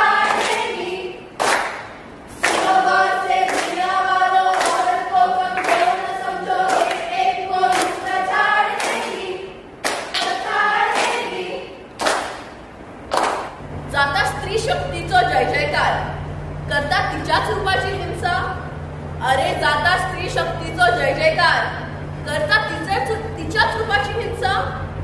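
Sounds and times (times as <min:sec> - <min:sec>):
group singing a chant: 0:00.0 - 0:01.8, 0:02.4 - 0:12.4
hand claps: 0:00.2 - 0:00.8, 0:01.4 - 0:02.8, 0:03.4 - 0:03.9, 0:04.5 - 0:05.0, 0:05.6 - 0:06.0, 0:06.7 - 0:08.1, 0:08.7 - 0:09.2, 0:09.8 - 0:11.4, 0:12.0 - 0:13.6.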